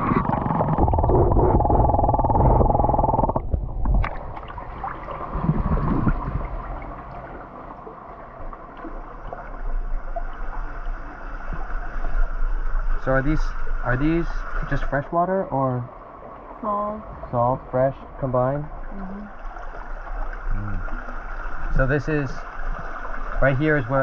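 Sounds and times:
water bubbling over microphone: 0.0s - 7.8s
water sloshing and splashing: 0.0s - 13.2s, 15.9s - 24.0s.

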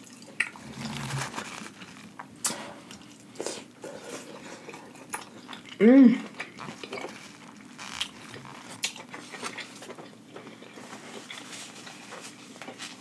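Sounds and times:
close chewing: 0.0s - 12.8s
paper napkin rustling: 0.6s - 2.3s, 6.6s - 9.8s, 10.8s - 13.0s.

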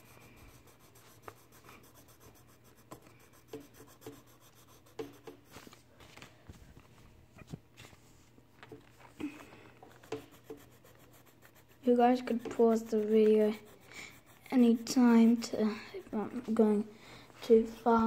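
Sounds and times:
faint pencil scratching on paper: 0.0s - 5.8s, 9.8s - 18.0s.

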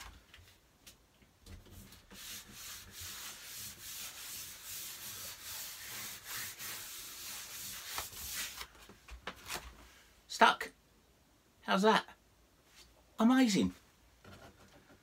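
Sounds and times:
hand rubbing paper poster on wall: 0.0s - 9.7s.

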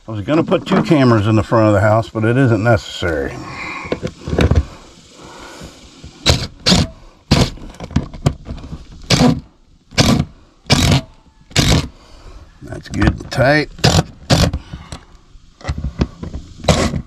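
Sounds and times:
impact driver driving screws: 6.2s - 7.6s, 9.1s - 11.9s, 13.8s - 14.6s.

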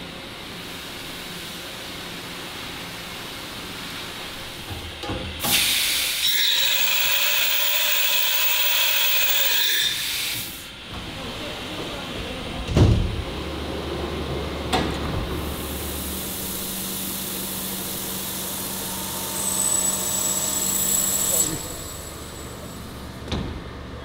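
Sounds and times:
machine spray-like hiss: 5.4s - 6.4s, 9.8s - 10.7s, 15.4s - 22.0s
high whine: 15.6s - 23.2s.

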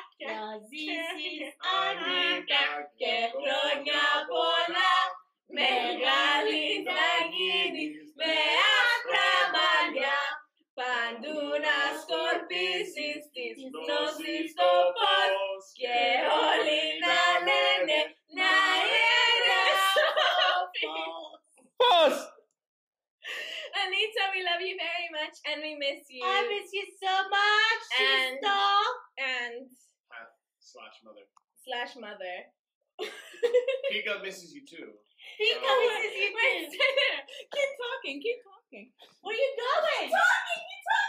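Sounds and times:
group singing birthday song: 0.0s - 22.2s, 24.3s - 28.8s, 35.3s - 37.9s, 39.3s - 41.0s.

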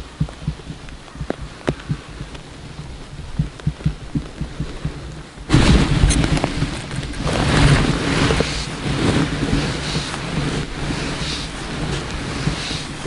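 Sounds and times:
soft low thumps: 0.0s - 6.8s
sleeve rubbing on microphone: 3.2s - 13.0s.

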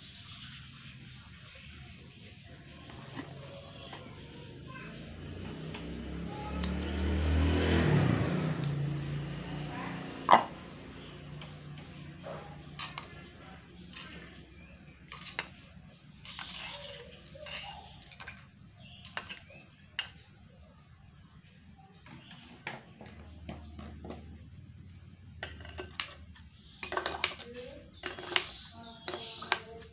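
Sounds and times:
stick stirring in ceramic pot: 2.1s - 6.7s, 10.4s - 20.4s, 21.9s - 29.9s.

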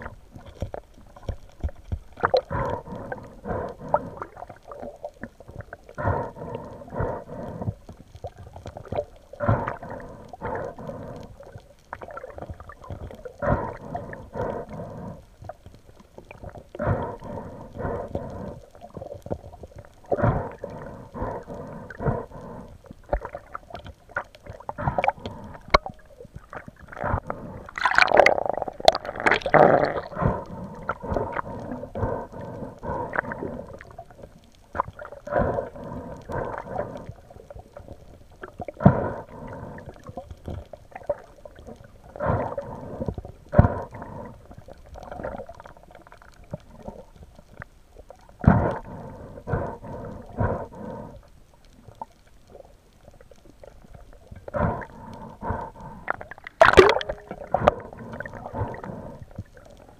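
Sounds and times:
water sloshing underwater: 0.0s - 59.9s.

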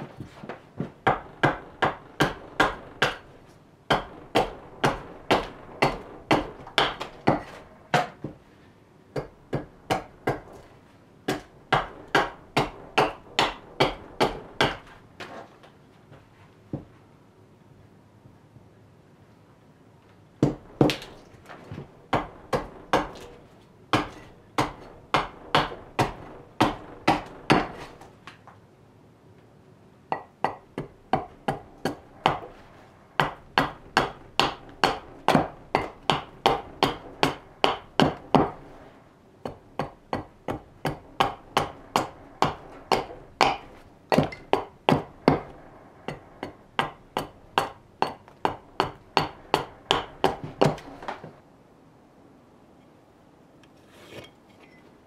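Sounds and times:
steel tool striking wood block: 39.4s - 51.2s.

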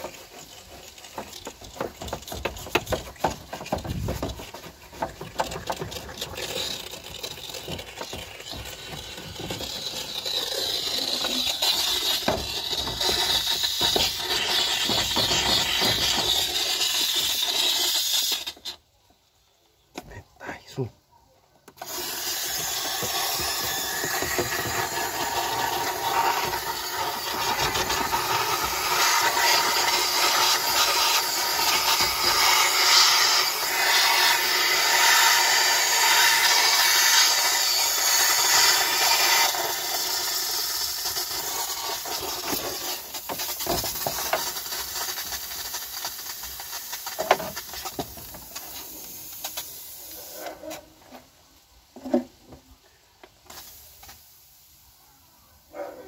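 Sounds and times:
steam cleaner hissing: 0.0s - 18.7s, 21.8s - 50.5s, 53.4s - 55.0s.

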